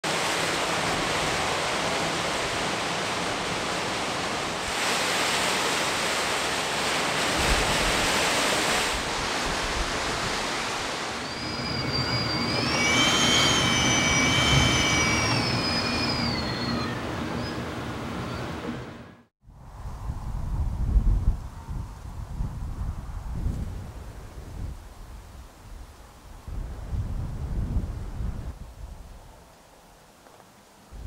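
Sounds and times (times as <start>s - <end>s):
gusty wind blowing: 0.0s - 29.4s
high whistling tone: 10.3s - 18.8s.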